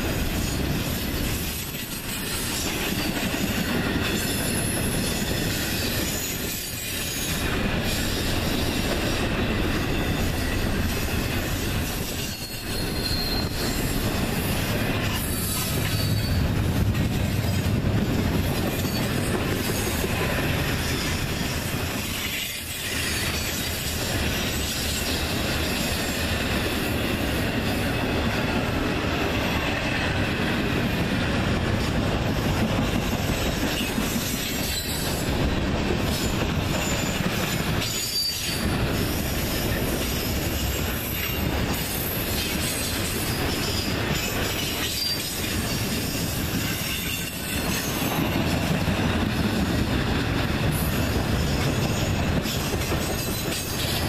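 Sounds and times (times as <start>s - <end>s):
train wheels rumbling on rail: 0.0s - 54.0s
high wheel squeal: 11.9s - 16.5s, 33.8s - 35.2s, 37.8s - 39.3s, 44.6s - 48.1s.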